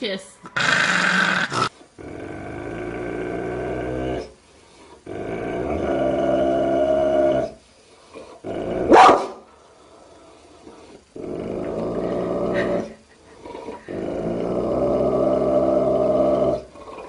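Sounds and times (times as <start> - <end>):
dog growling: 0.4 - 9.0, 9.8 - 17.0
loud dog bark: 8.9 - 9.4.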